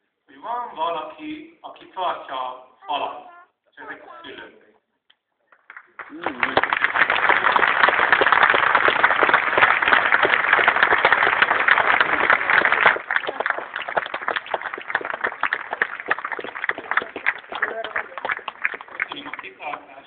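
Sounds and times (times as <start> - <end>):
crowd applauding: 5.5 - 20.0.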